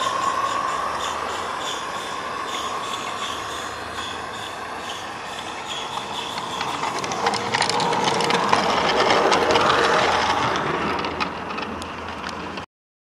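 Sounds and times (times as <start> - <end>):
model train wheels rumbling: 0.0 - 12.7.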